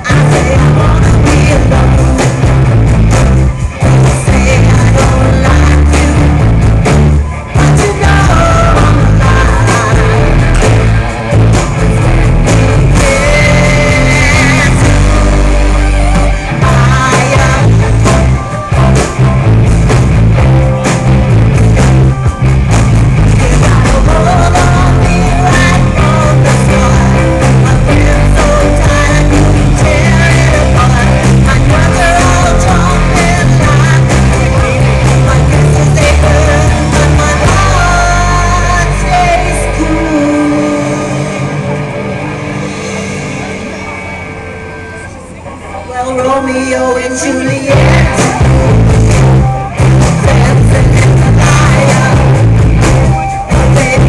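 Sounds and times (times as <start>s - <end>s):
woman singing: 0.0s - 2.6s, 3.9s - 6.5s, 7.6s - 10.8s, 12.3s - 19.2s, 23.3s - 41.5s, 45.9s - 49.2s, 49.8s - 52.6s, 53.4s - 54.0s
live rock band playing: 0.0s - 54.0s.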